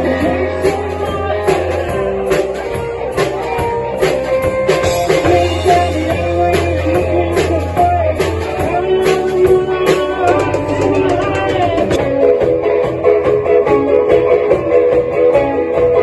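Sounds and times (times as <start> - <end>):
man singing into microphone: 0.0 - 2.1, 5.0 - 12.0
electric guitar: 0.0 - 16.0.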